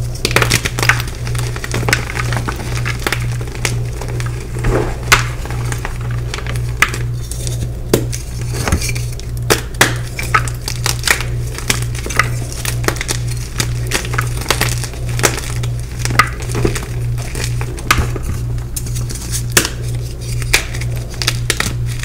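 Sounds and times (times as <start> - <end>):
low pulsing hum: 0.0 - 22.0.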